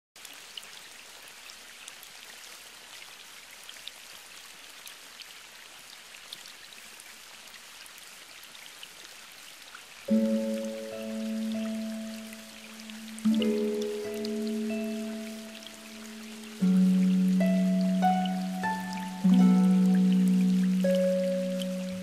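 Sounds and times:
steady rain hissing: 0.2 - 22.0
music with loud held chord: 10.1 - 22.0.

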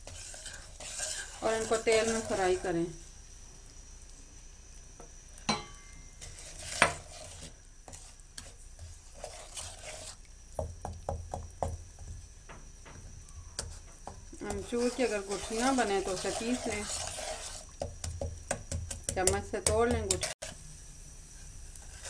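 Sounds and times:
spices sizzling in oil: 0.0 - 22.0
spatula knocking against pan: 17.8 - 20.2.

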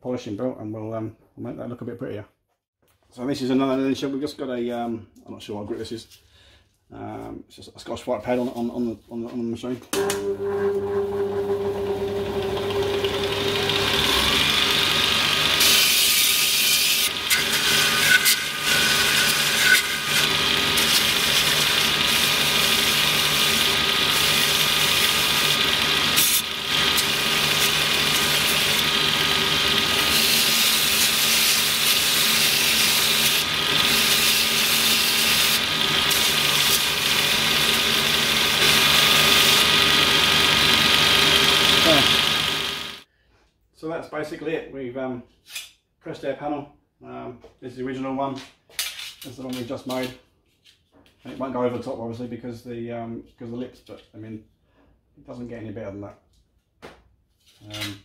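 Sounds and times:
belt sander motor humming: 10.0 - 43.1.

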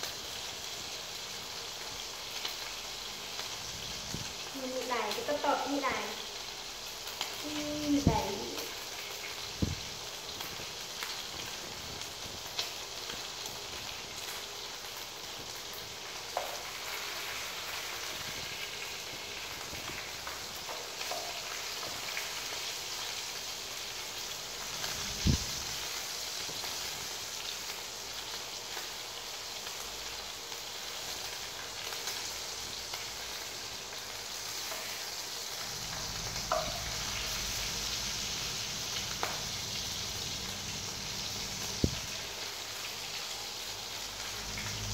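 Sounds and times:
food sizzling in pan: 0.0 - 44.9
spatula knocking pan: 36.4 - 37.2.

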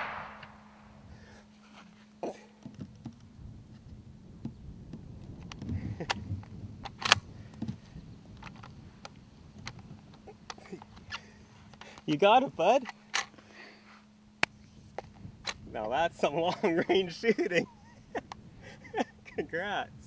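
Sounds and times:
faint low hum: 0.0 - 20.0
handling clicks and knocks: 5.4 - 12.2.

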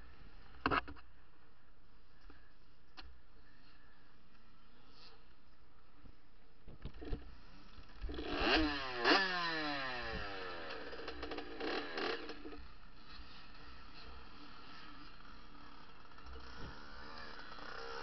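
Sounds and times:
dirt bike engine revving: 7.0 - 18.0.

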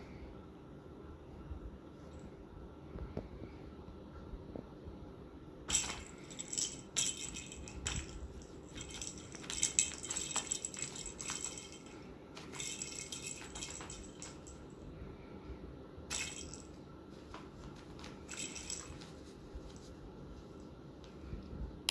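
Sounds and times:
jingle bell in toy ball: 5.7 - 14.8, 16.1 - 16.8, 18.2 - 19.2.

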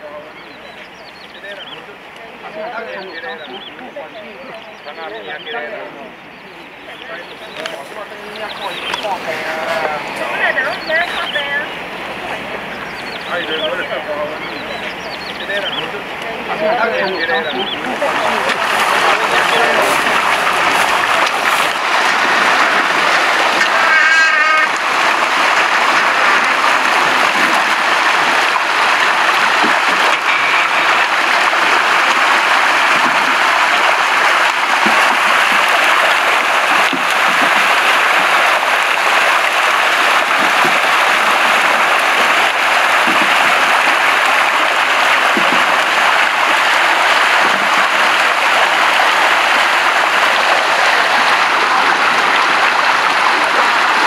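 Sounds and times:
fish thrashing and splashing: 17.8 - 54.0.

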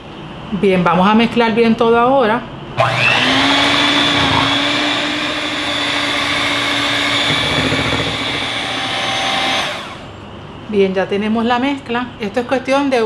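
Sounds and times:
electric hand mixer whirring: 2.8 - 10.2.

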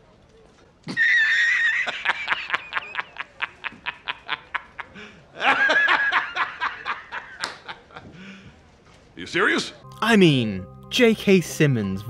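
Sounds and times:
man laughing hard: 1.0 - 8.1.

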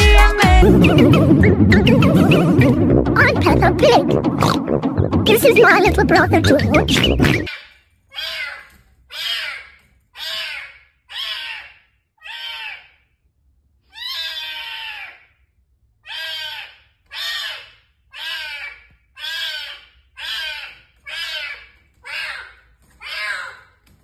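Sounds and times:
kitten meowing: 14.0 - 15.1.

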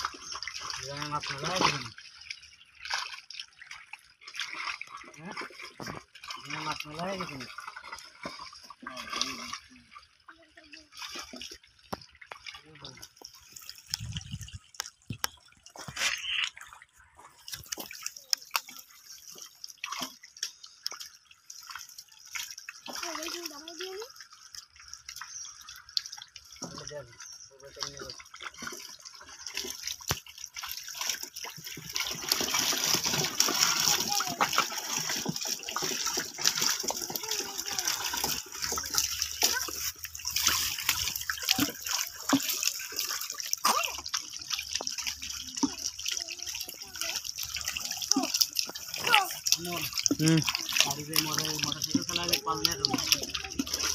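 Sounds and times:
splashing in muddy water: 0.0 - 53.9
fish flapping in water: 28.2 - 53.9.

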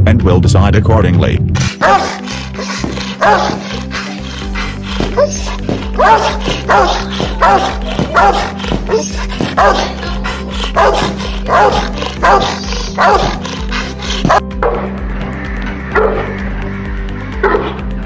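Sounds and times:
dog barking loudly: 1.8 - 2.3, 3.1 - 3.8, 4.4 - 14.8.

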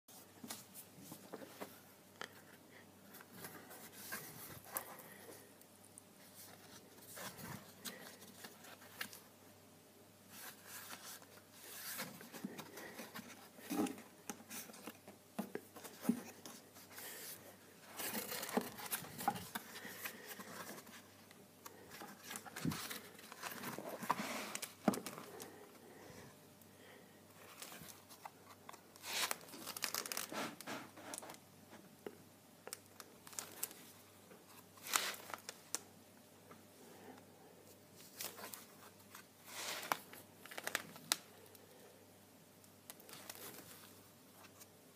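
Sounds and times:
paper pages turning: 15.8 - 21.0, 27.5 - 31.3, 38.0 - 41.2.

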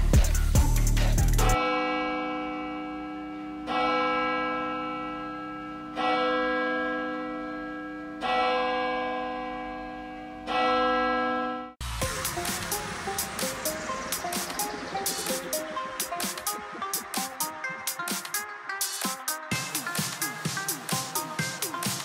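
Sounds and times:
church bell tolling: 1.6 - 17.5.

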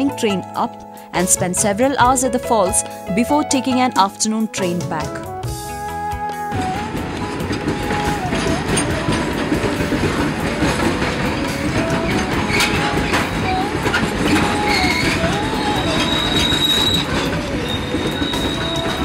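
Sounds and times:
train wheels rolling on track: 6.3 - 19.0
high wheel squeal: 6.8 - 19.0.

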